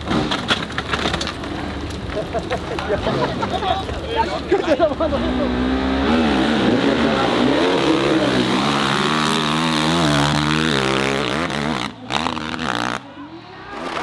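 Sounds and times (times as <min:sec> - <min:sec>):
dirt bike engine revving: 0:05.0 - 0:13.0.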